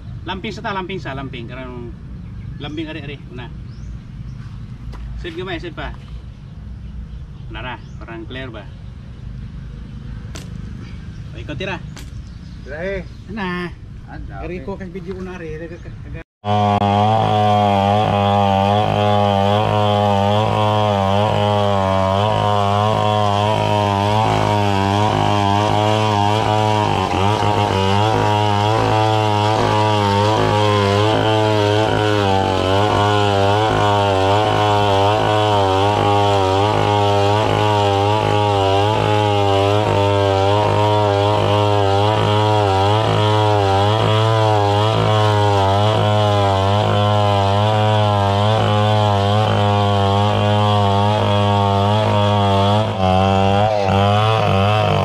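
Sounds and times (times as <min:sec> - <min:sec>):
chainsaw cutting log: 0:10.3 - 0:12.4, 0:16.4 - 0:55.0.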